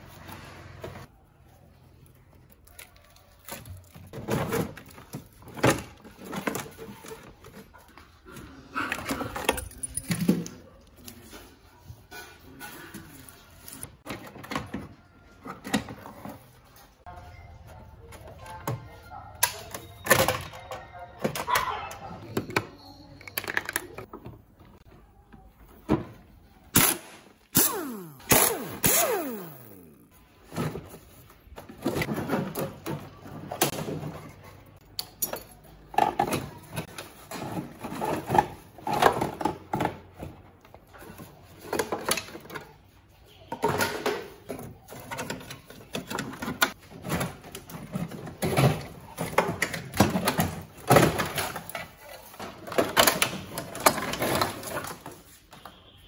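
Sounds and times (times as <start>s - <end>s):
plastic panels clicking and rattling: 30.6s - 55.4s.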